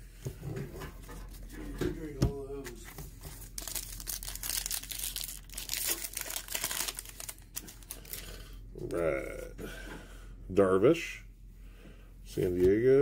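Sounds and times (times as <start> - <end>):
card pack wrapper crinkling and tearing: 3.2 - 8.5.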